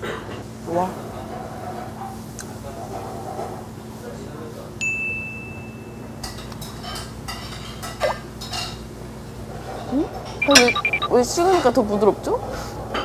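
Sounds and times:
cutlery clinking on plates: 6.2 - 8.8
high electronic tone: 10.4 - 11.2.

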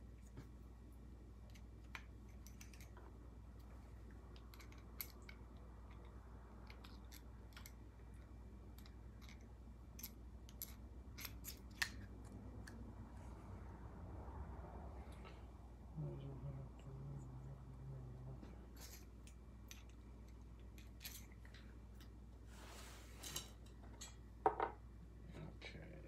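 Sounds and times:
low steady hum: 0.0 - 26.0
small parts clicking and tapping: 1.4 - 12.8.

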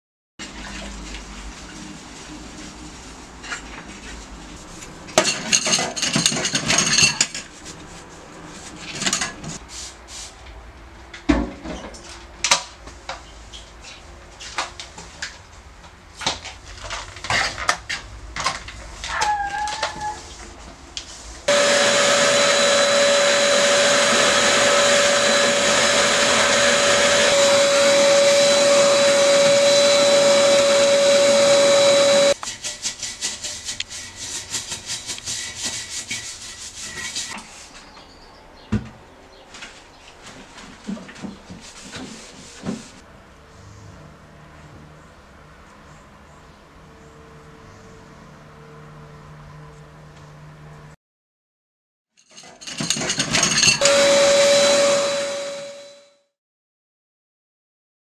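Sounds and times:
toilet brush scrubbing: 0.4 - 10.4, 19.1 - 37.8, 40.3 - 43.1
dishes clattering in a sink: 5.1 - 7.5, 8.9 - 9.6, 52.2 - 53.8
electric appliance whining: 21.5 - 32.4, 53.8 - 56.0.

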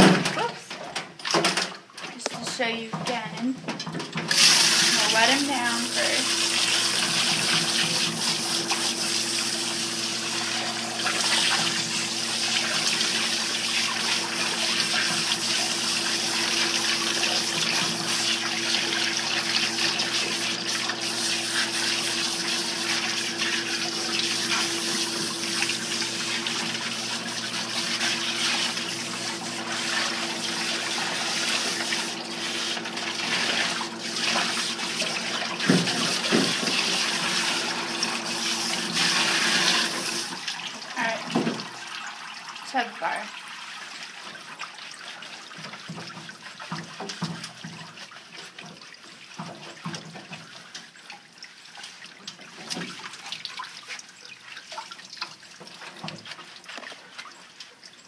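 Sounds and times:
water sprayer hissing: 4.3 - 40.4.

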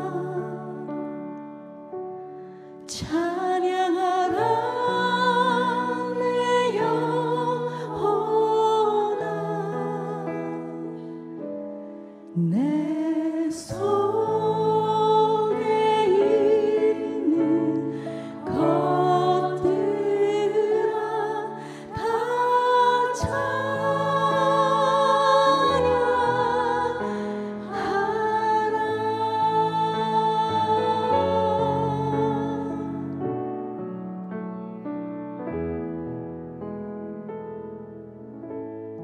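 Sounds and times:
woman singing into microphone: 0.0 - 0.9, 2.9 - 11.0, 12.3 - 33.1.

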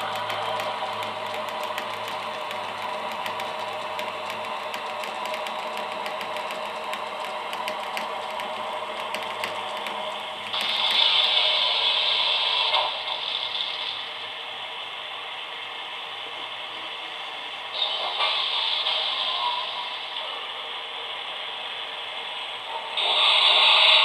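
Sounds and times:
electric motor hum: 0.0 - 11.2
fine ticking of gearing: 0.0 - 11.2.

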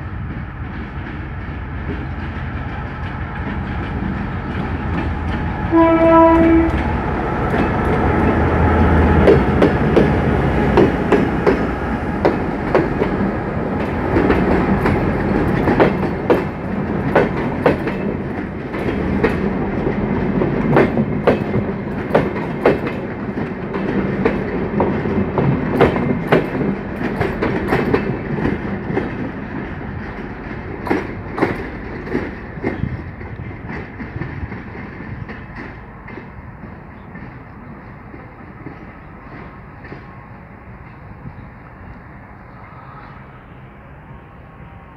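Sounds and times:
train wheels clacking on rails: 0.0 - 42.1
locomotive horn blast: 5.7 - 6.9.

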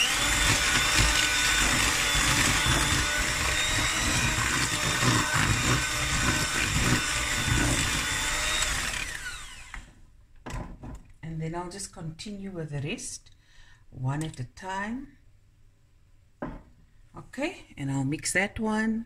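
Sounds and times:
electric hand mixer whining: 0.0 - 9.9.

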